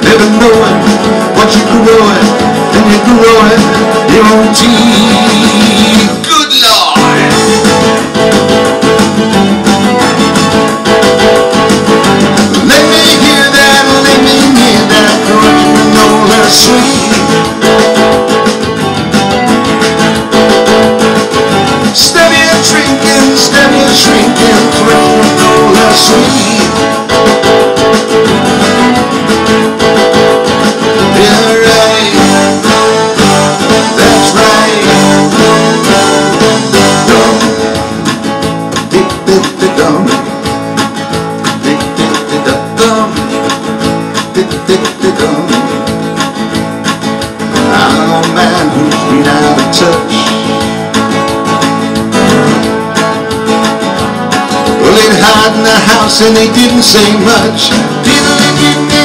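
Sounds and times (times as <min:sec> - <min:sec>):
person singing into a microphone: 0:00.0 - 0:07.7, 0:12.4 - 0:18.2, 0:21.6 - 0:27.9, 0:30.8 - 0:51.0, 0:54.6 - 0:59.0
acoustic guitar strumming: 0:00.0 - 0:59.0.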